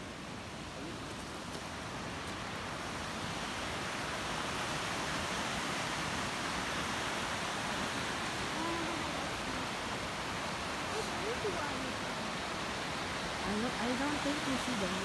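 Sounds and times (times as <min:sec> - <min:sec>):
river rushing over rapids: 0:00.0 - 0:15.0.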